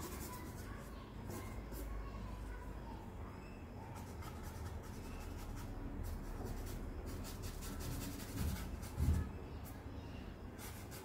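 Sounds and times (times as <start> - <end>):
charcoal scratching on paper: 0.0 - 2.0, 3.9 - 9.3, 10.6 - 11.0.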